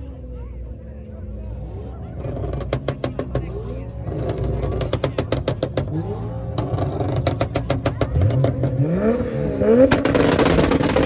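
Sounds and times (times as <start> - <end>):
engine revving with harsh crackle: 2.2 - 11.0
exhaust pops and bangs: 9.8 - 11.0.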